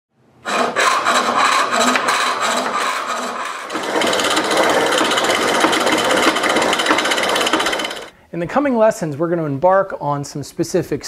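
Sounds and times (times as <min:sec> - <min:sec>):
lathe tool cutting wood: 0:00.5 - 0:08.1.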